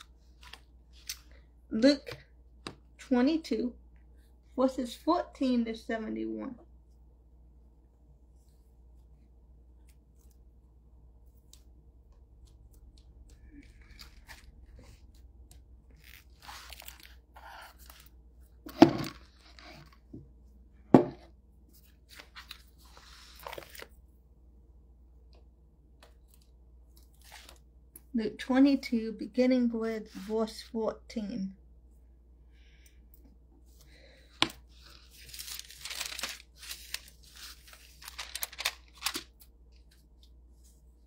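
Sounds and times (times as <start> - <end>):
paper pages rustling and turning: 0.0 - 1.3, 11.3 - 20.1, 21.7 - 24.0, 26.0 - 27.7, 34.4 - 41.0.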